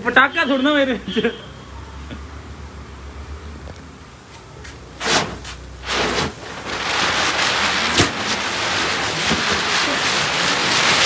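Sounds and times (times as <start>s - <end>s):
firecracker whooshes: 5.0s - 11.0s
sharp crack: 5.0s - 11.0s
spinning firecrackers hissing: 5.0s - 11.0s.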